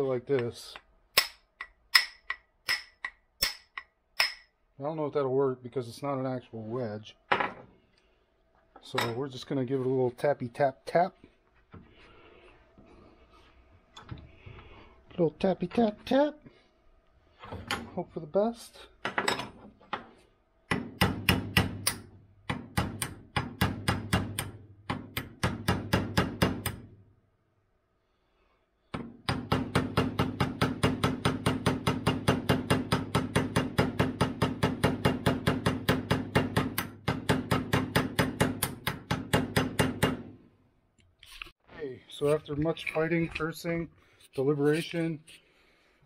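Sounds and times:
hammer tapping metal blade: 0.4 - 4.5.

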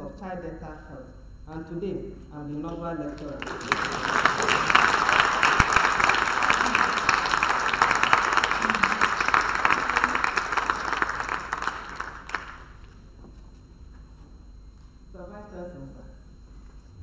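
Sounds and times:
audience applauding: 3.1 - 12.9.

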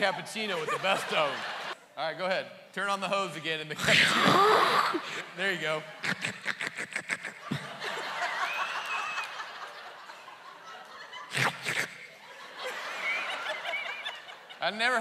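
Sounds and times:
audience laughter: 0.0 - 1.8, 6.2 - 11.4, 12.0 - 14.6.

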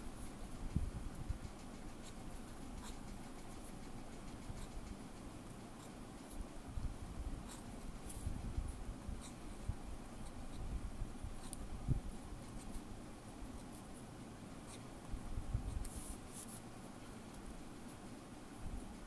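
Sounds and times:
fountain pen scratching on paper: 1.2 - 6.4, 7.4 - 10.7, 11.3 - 11.7.

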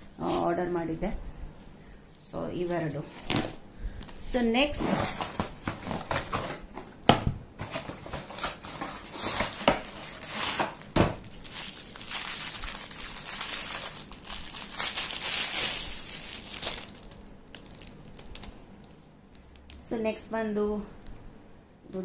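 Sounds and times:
packaging crinkling and rustling: 4.0 - 7.0, 7.6 - 19.9.

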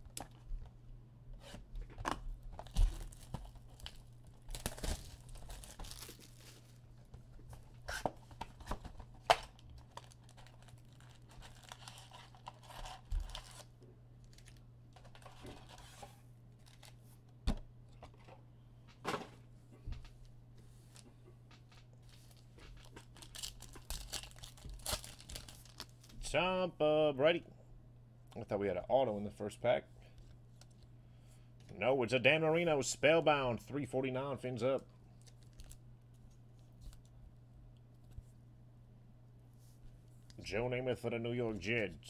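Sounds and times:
wrapping torn and crinkled: 2.5 - 7.0, 8.2 - 17.1, 21.9 - 26.2, 35.1 - 37.1.

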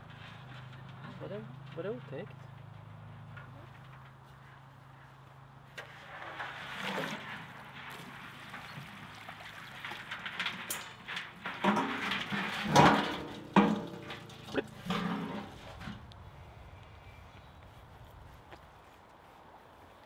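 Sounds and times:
crayfish shells scrabbling on metal: 6.1 - 16.0
metal rims knocking: 6.2 - 16.1.

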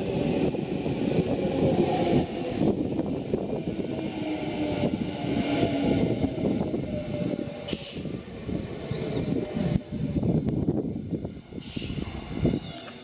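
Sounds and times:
electric train rumble: 0.0 - 13.0
short hiss of air: 7.7 - 8.2, 11.6 - 12.2.

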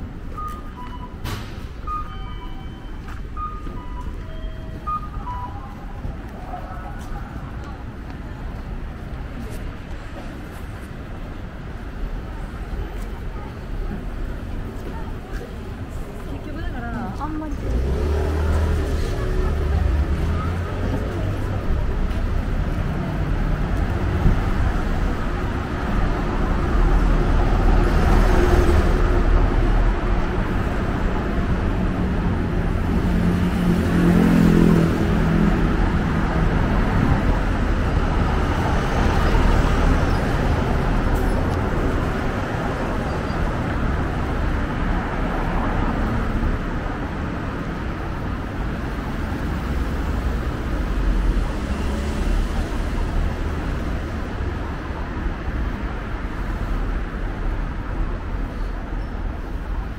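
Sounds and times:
city traffic rumble: 0.0 - 59.9
vehicle engine passing: 17.5 - 25.8.

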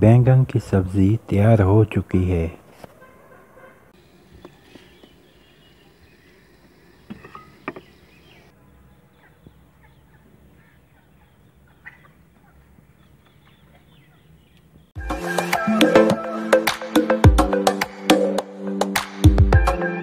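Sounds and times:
faint fowl calls: 2.7 - 14.7
light knocks: 7.1 - 7.9.

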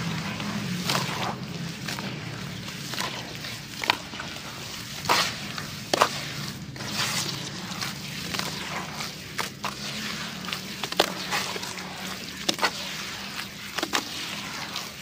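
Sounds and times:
wet paste squelching and sloshing: 0.0 - 15.0
sharp wet slaps: 5.0 - 14.4.

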